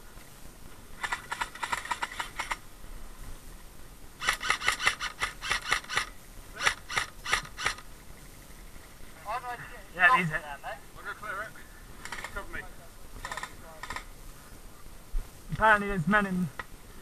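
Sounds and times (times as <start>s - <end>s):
airsoft guns firing: 4.2s - 7.8s.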